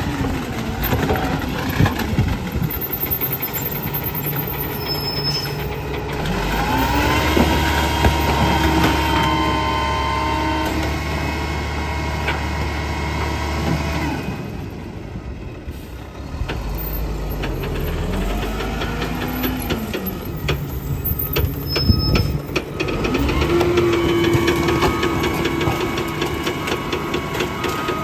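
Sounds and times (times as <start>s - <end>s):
garbage truck diesel engine: 0.0s - 28.0s.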